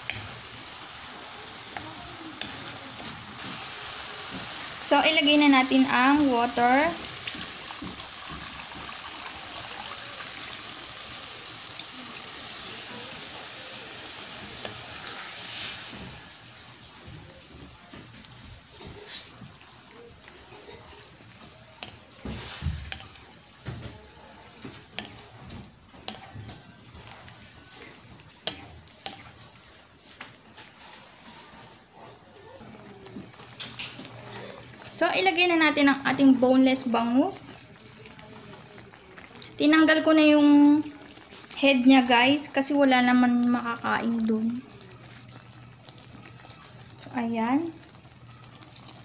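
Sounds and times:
water sizzling in hot pan: 0.0s - 31.2s, 32.6s - 49.0s
wooden spatula scraping a pan: 20.5s - 32.2s.

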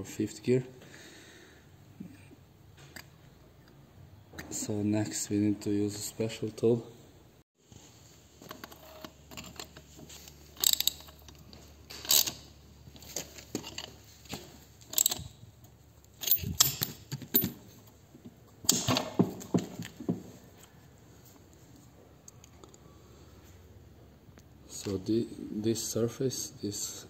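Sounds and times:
metal tools clinking on gearbox: 8.6s - 15.5s, 16.2s - 17.7s.

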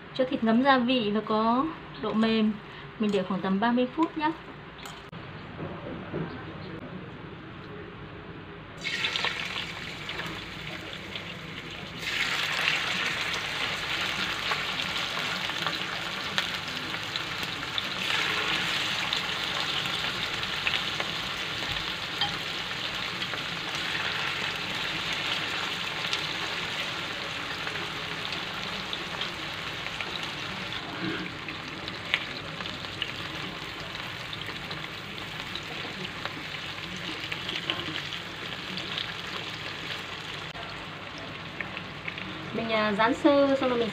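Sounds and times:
meat sizzling in a frying pan: 8.8s - 43.9s.

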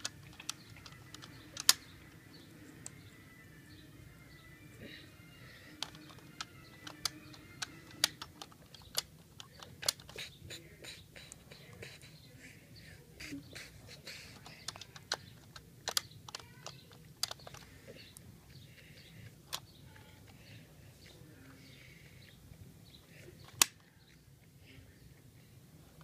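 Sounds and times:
small clicks and taps: 5.8s - 10.3s, 14.4s - 18.6s.

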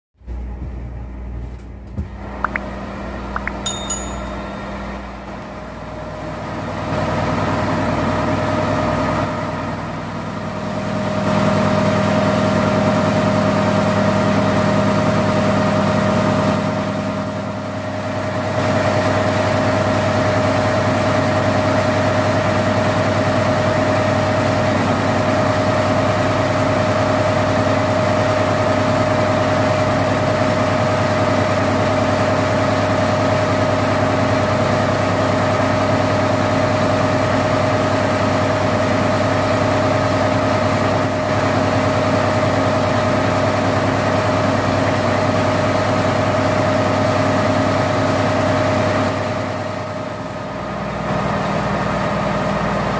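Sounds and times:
engine drone: 0.2s - 52.9s
steady high whine: 2.2s - 6.8s.

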